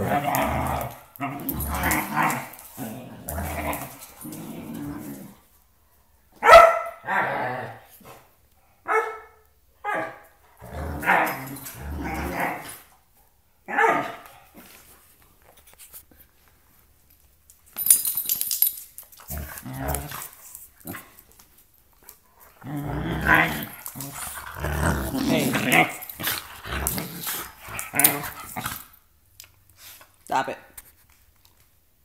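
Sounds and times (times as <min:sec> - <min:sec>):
dogs growling: 0:00.0 - 0:05.5, 0:10.6 - 0:12.9, 0:19.2 - 0:21.4, 0:22.4 - 0:29.0
dogs barking sharply: 0:06.4 - 0:07.0, 0:08.9 - 0:10.2, 0:13.7 - 0:14.2.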